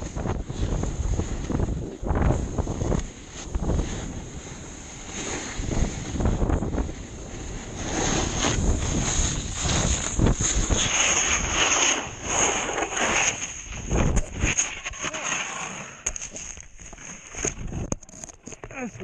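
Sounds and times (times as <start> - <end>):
wind buffeting microphone: 0.0 - 12.2
snowboard scraping on snow: 0.0 - 17.9.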